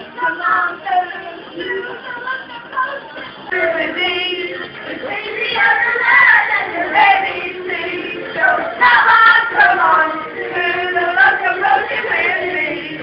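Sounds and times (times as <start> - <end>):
backing music: 0.0 - 13.0
other voices singing along: 0.0 - 13.0
woman singing into a microphone: 0.0 - 13.0.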